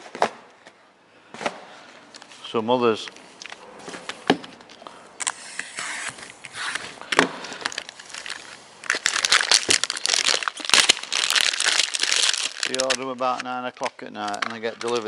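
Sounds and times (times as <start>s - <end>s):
packaging crinkling: 6.7s - 15.0s.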